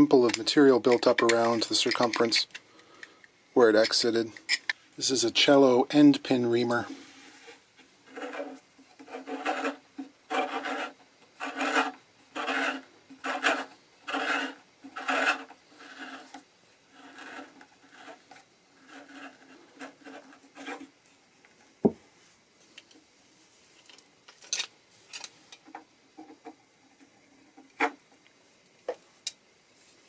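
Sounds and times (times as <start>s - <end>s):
reamer rasping in wood: 8.1s - 18.2s.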